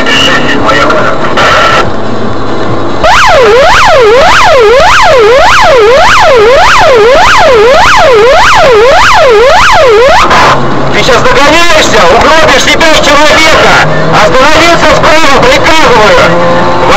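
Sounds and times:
police siren wailing: 3.0s - 10.7s, 13.1s - 16.9s.

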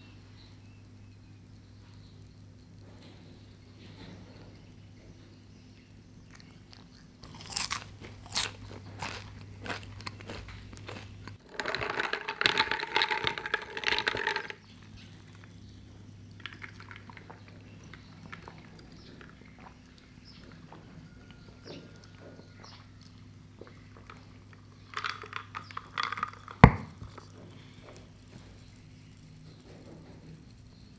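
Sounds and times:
french fry crunching: 6.2s - 27.4s
straw rattling ice in cola: 7.2s - 30.9s.

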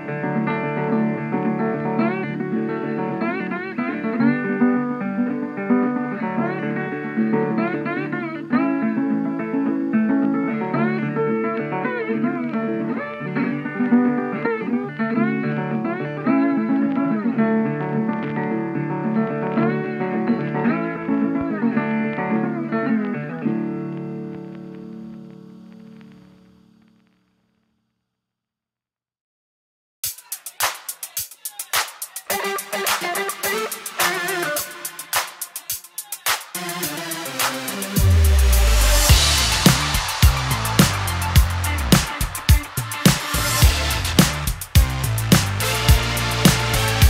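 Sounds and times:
plucked guitar music: 0.0s - 26.3s, 36.6s - 47.0s.

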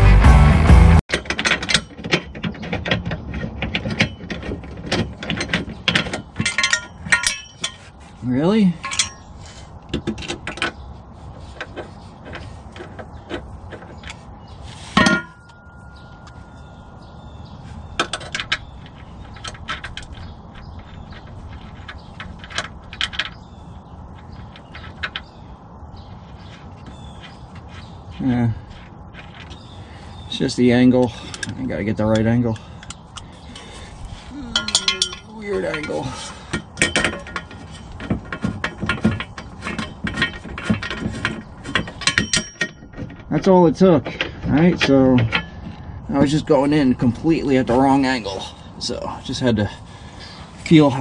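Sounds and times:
metal rail clanking on ground: 1.1s - 7.9s, 8.8s - 9.3s, 14.9s - 23.4s, 34.4s - 48.4s.

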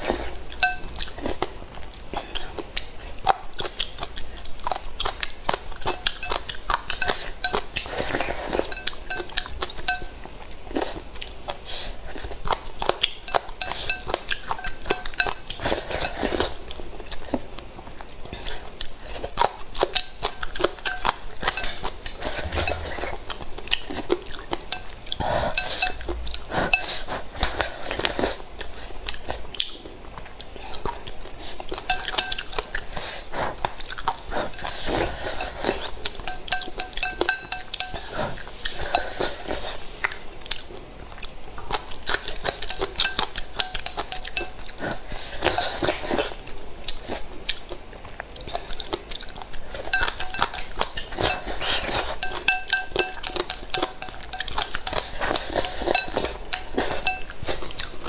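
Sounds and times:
chewing and crunching: 0.0s - 58.0s
chopsticks clinking on ceramic bowl: 0.6s - 1.1s, 5.8s - 10.2s, 13.2s - 16.5s, 19.8s - 23.2s, 24.6s - 27.6s, 31.8s - 32.9s, 34.5s - 39.6s, 42.1s - 46.2s, 49.8s - 57.8s.

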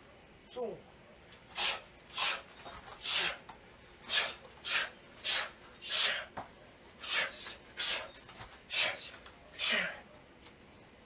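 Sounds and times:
sharp hissing exhalations: 1.5s - 6.4s, 7.0s - 10.1s.

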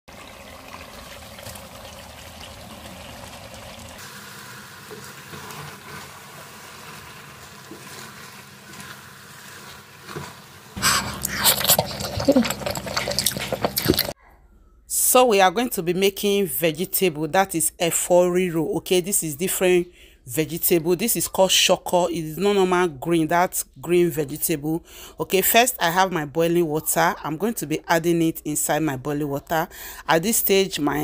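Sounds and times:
wooden spoon stirring soup: 4.9s - 14.2s
close-up wet chewing: 10.8s - 14.2s.

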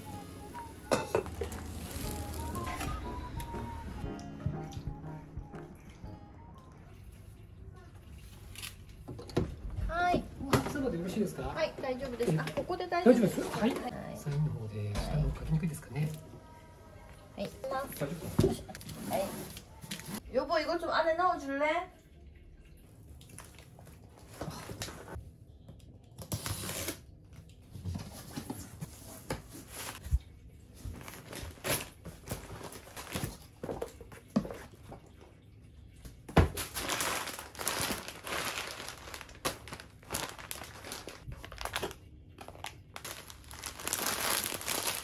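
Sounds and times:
crinkling and rustling: 1.2s - 3.1s, 26.3s - 35.3s, 36.2s - 45.0s.

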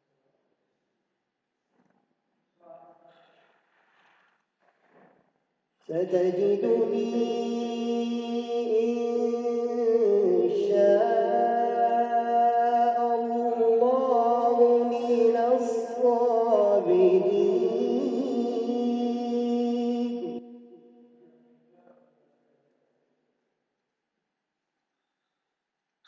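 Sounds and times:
man chanting melodically: 5.8s - 20.6s.

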